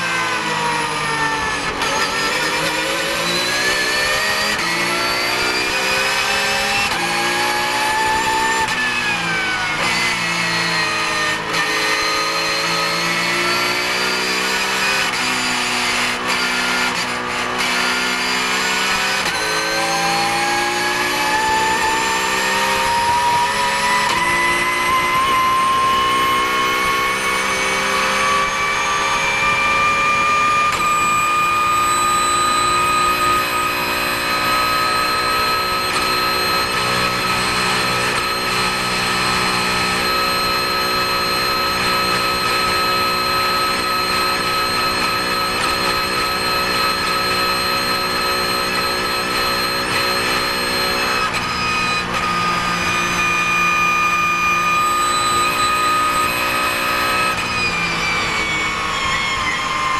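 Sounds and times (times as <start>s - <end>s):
race car engine at full throttle: 0.0s - 59.9s
high whine: 23.1s - 59.9s.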